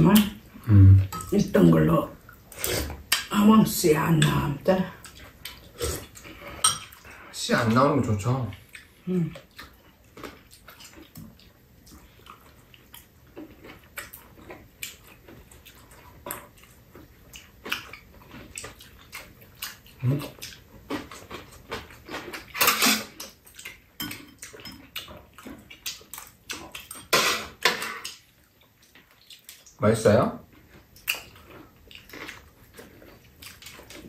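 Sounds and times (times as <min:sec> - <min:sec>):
wet chewing and lip smacking: 0:05.0 - 0:07.2, 0:08.5 - 0:27.1, 0:28.0 - 0:29.8, 0:30.5 - 0:34.0.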